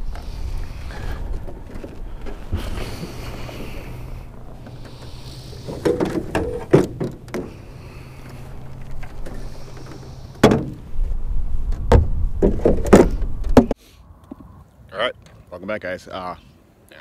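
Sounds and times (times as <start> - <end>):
steady low hum: 0.0 - 13.8
sharp knocks and clunks: 4.6 - 8.4, 9.0 - 10.9, 11.7 - 14.4.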